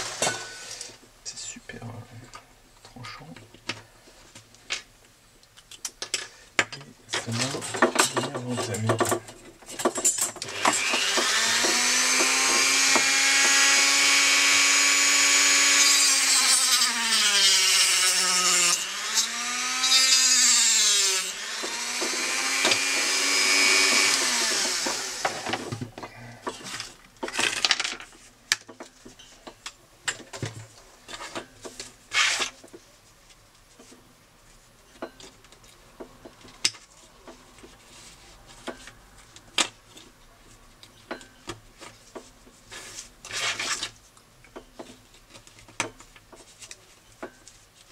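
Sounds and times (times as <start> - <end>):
rotary tool cutting disc whine: 10.4 - 25.8.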